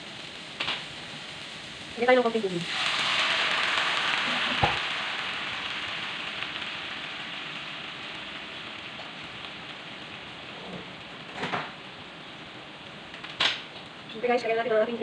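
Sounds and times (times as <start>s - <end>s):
water sizzling in hot oil: 0.0s - 15.0s.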